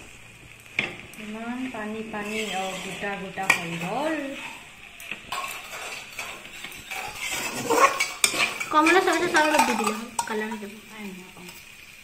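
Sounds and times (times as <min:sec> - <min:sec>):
food sizzling: 0:00.0 - 0:12.0
metal spatula scraping iron pan: 0:02.0 - 0:10.6.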